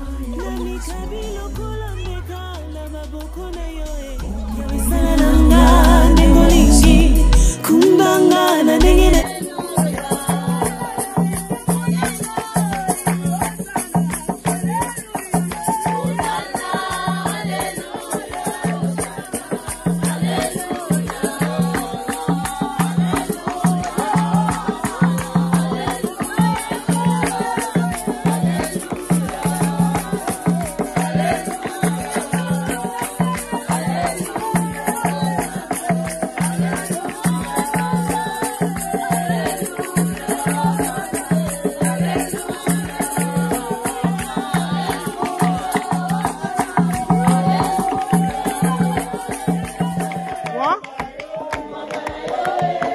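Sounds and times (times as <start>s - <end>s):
drum beat: 0.0s - 52.9s
voices singing: 0.0s - 52.9s
shaker rattling: 8.8s - 50.2s.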